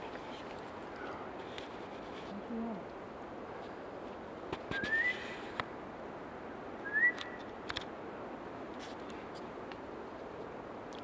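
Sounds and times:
person whistling: 4.7s - 5.2s.

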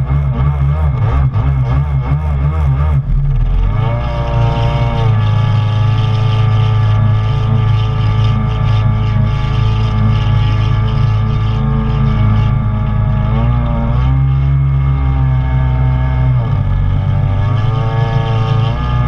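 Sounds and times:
jet ski engine running hard: 0.0s - 19.0s.

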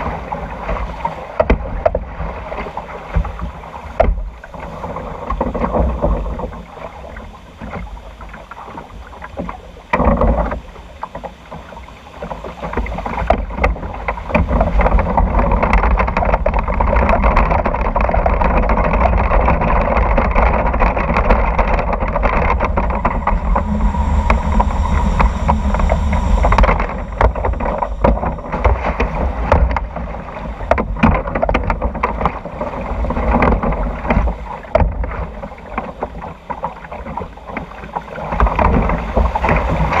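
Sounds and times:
water rushing and sloshing: 0.0s - 40.0s
steady rumbling of lift hill: 12.8s - 35.8s.

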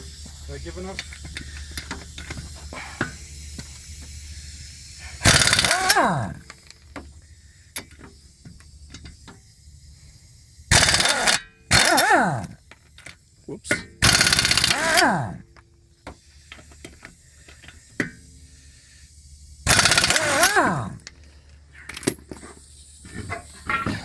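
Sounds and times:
impact wrench rattling: 0.8s - 7.2s, 10.7s - 15.5s, 19.6s - 24.0s.

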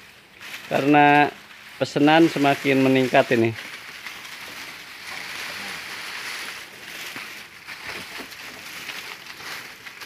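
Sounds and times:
dry leaves and cardboard rustling: 0.0s - 10.0s.

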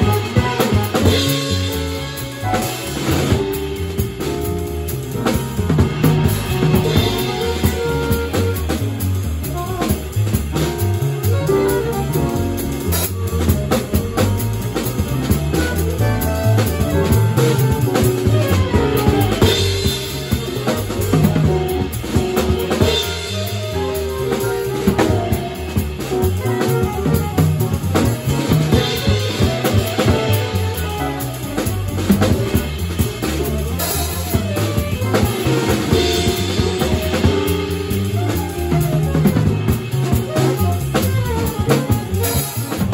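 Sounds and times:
bass line: 0.0s - 42.9s
drum kit beat: 0.0s - 42.9s
saxophone: 0.0s - 42.9s
electric keyboard: 2.2s - 42.9s.

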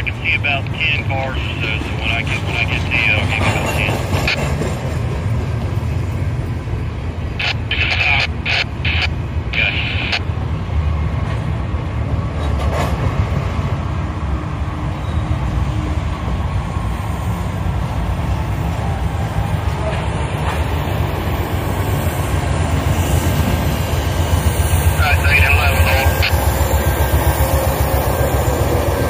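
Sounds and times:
diesel locomotives: 0.0s - 29.0s
freight train rumbling past: 0.0s - 29.0s.

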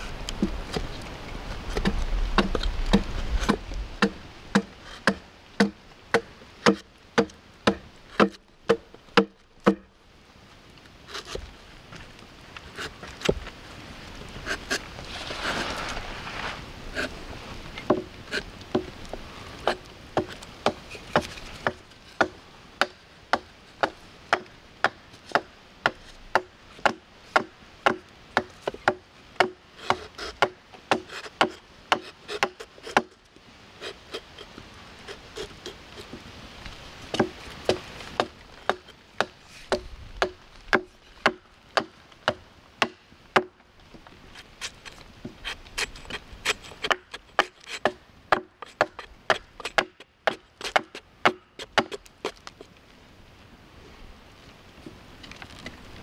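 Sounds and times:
hatchet chopping wood: 1.7s - 9.9s, 19.6s - 33.2s, 37.1s - 43.5s, 45.4s - 52.4s.

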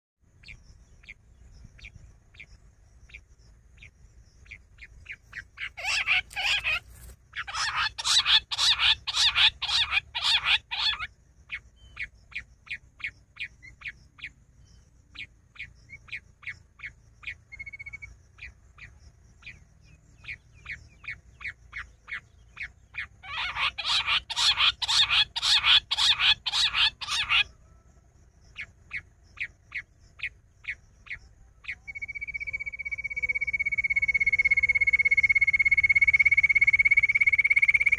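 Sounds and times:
quail calling: 5.3s - 11.1s, 20.2s - 27.6s, 28.6s - 37.9s.

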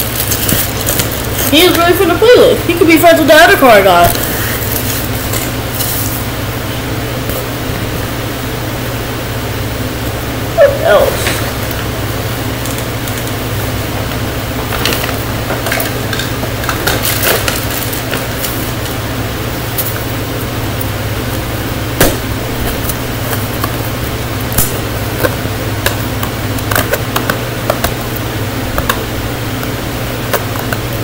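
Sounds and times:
plastic wrapper crinkles and taps: 0.0s - 1.8s
fan hum: 0.0s - 31.0s.

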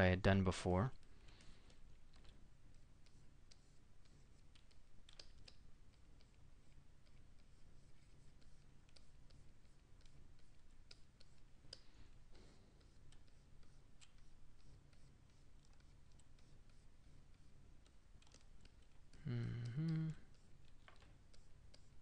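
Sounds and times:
low room hum: 0.0s - 22.0s
man humming: 19.2s - 20.3s.

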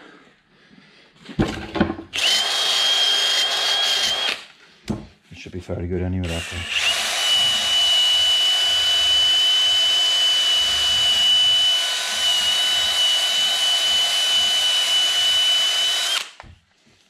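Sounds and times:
power tool whining: 2.1s - 4.5s, 6.2s - 16.5s.

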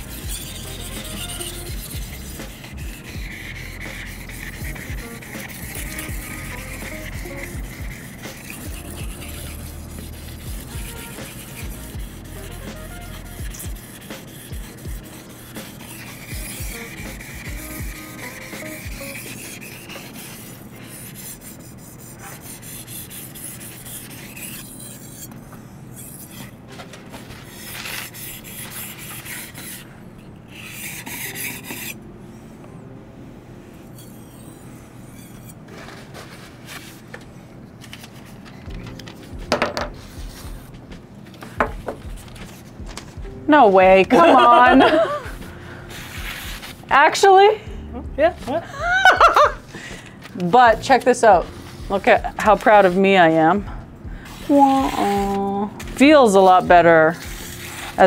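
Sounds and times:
knife slicing through paper: 0.0s - 25.3s, 26.0s - 29.9s, 54.3s - 58.0s
knife rasping on whetstone: 0.0s - 29.9s, 30.5s - 32.0s, 33.8s - 36.9s, 50.4s - 53.6s, 54.2s - 58.0s.

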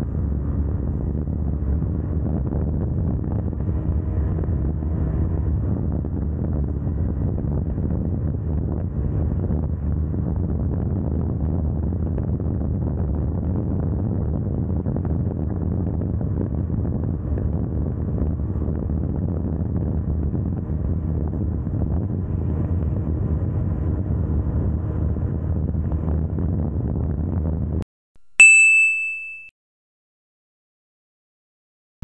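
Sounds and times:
motorcycle engine at high speed: 0.0s - 10.2s
bright ding chime: 28.3s - 29.5s.

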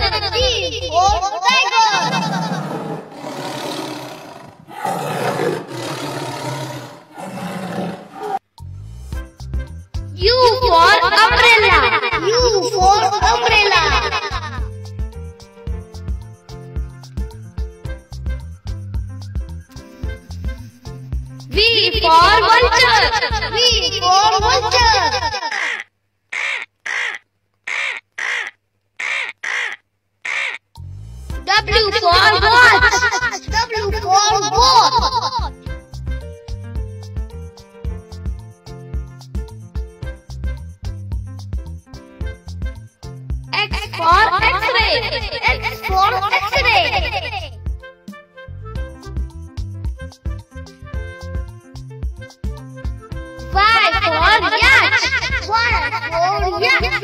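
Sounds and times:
tiger roaring: 2.0s - 8.4s
bird cawing: 25.4s - 30.6s.

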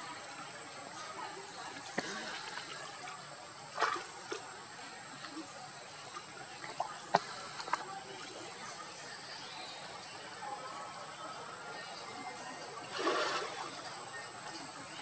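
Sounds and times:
water splashing: 1.7s - 5.4s, 12.8s - 13.9s
wash of water noise: 12.8s - 13.9s.

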